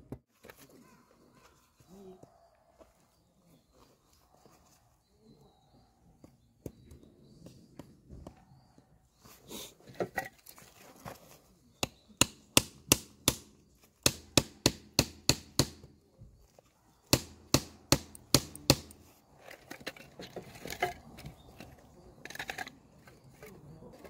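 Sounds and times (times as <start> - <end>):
split wood clattering: 17.1 - 24.0.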